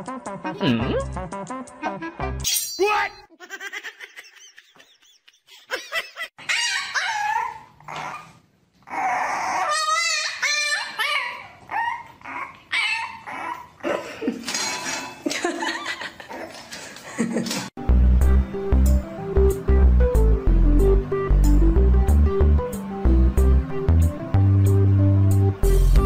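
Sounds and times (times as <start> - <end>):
puppy yipping and whining: 6.4 - 13.8.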